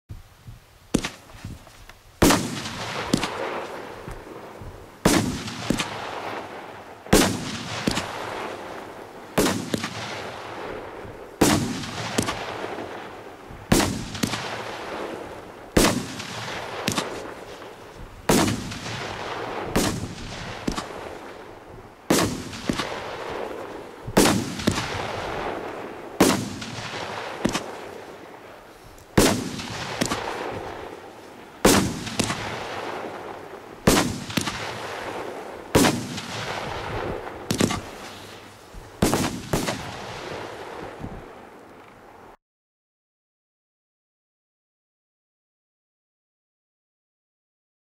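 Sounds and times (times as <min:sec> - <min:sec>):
fireworks battery bangs: 0:02.2 - 0:08.6, 0:11.4 - 0:13.0, 0:15.8 - 0:21.4, 0:22.1 - 0:27.9, 0:29.1 - 0:31.0, 0:31.6 - 0:40.4.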